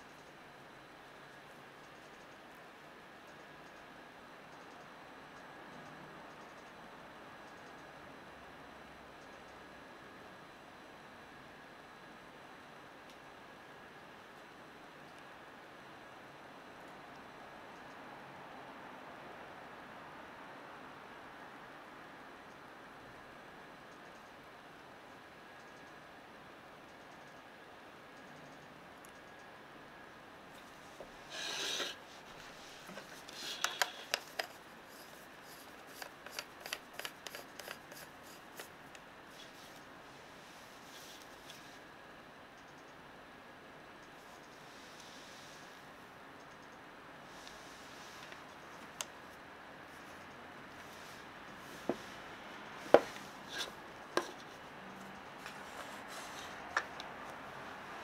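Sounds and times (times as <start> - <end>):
short scrape: 31.2 - 32.1
camera lens handling rub: 31.3 - 38.7, 52.9 - 54.6.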